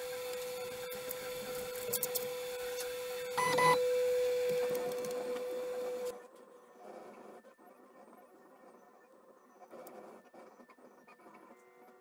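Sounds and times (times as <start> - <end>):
three d printer whine: 0.0 - 7.4.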